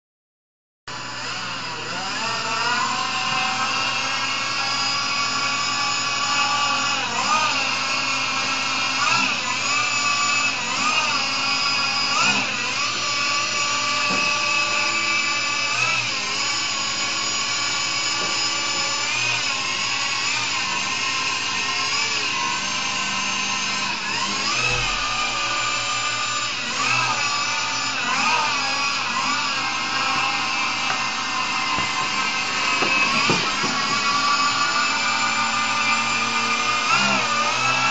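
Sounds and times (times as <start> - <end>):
electric motor whining: 0.9 - 37.9.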